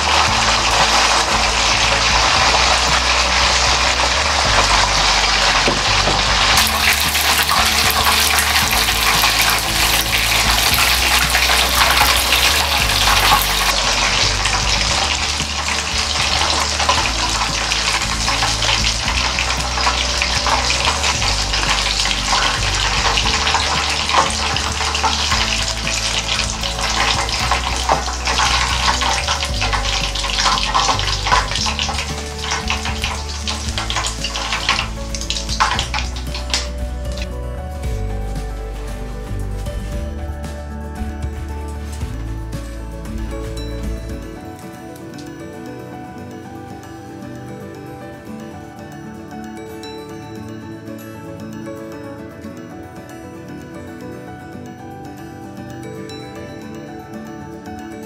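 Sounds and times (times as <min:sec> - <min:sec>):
chicken deep-frying in oil: 0:00.0 - 0:40.1.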